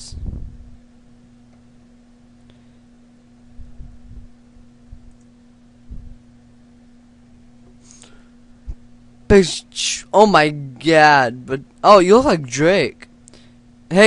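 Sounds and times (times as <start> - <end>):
steady low hum: 0.0 - 14.0
dull low thumps: 3.5 - 5.2, 5.8 - 6.2.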